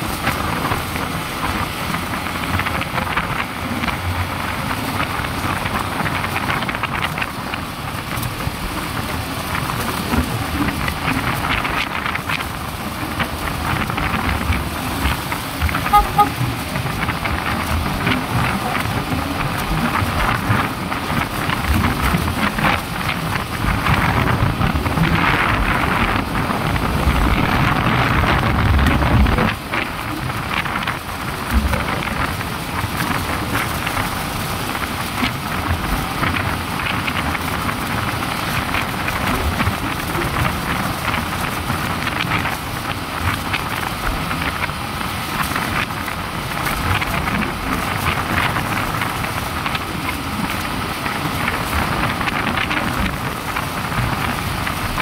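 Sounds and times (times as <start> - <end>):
tyre and road noise: 0.0 - 55.0
wind buffeting microphone: 0.0 - 55.0
motorcycle engine running: 8.8 - 45.0.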